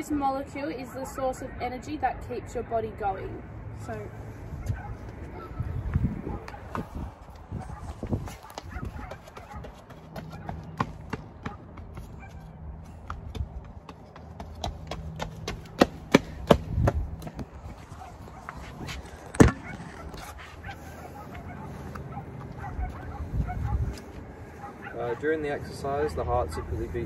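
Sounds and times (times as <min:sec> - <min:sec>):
running footsteps on concrete: 0:04.6 - 0:25.0.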